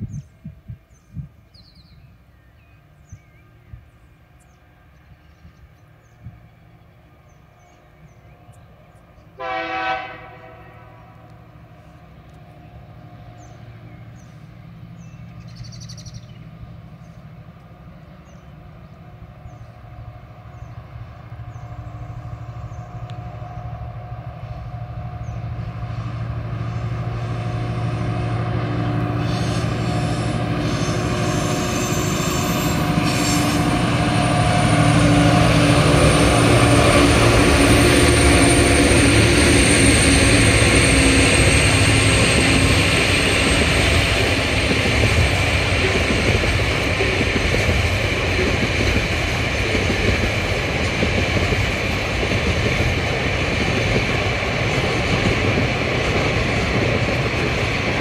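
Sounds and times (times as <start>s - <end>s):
diesel locomotive rumble: 0.0s - 58.0s
locomotive horn blast: 9.4s - 11.3s.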